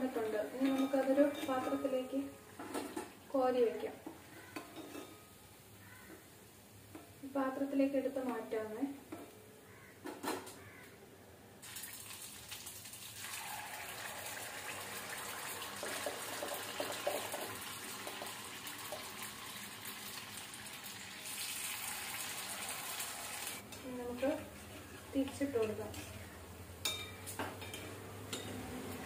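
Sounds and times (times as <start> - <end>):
batter sizzling in hot oil: 11.6 - 23.7.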